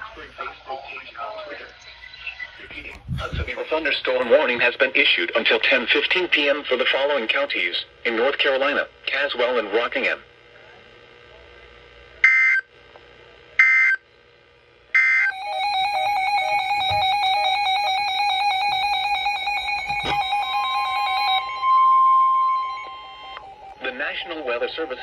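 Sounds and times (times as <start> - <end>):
electronic alarm tone: 15.0 - 25.0.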